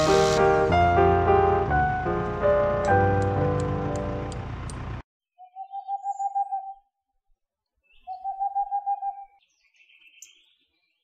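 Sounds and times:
small birds chirping: 7.6s - 11.0s.

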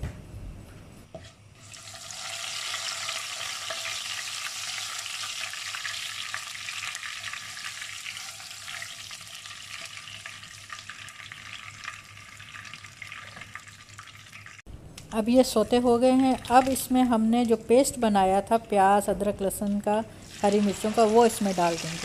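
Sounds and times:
spices sizzling in hot oil: 1.6s - 14.6s, 19.9s - 22.0s.

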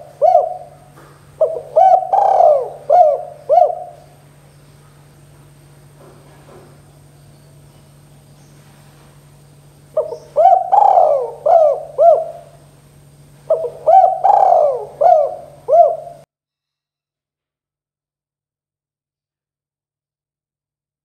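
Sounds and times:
dove cooing: 0.0s - 4.3s, 9.9s - 12.6s, 13.4s - 16.3s
faint low hum: 0.0s - 16.3s.

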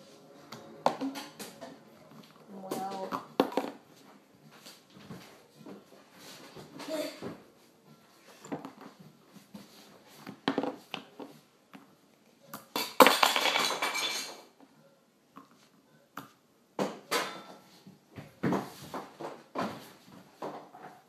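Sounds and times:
clatter of pieces: 12.8s - 14.4s.

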